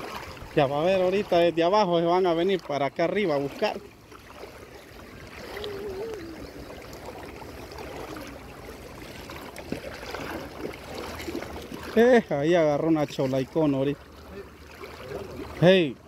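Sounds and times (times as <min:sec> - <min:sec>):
river running over stones: 0:00.0 - 0:16.0
faint distant voice: 0:05.4 - 0:06.8.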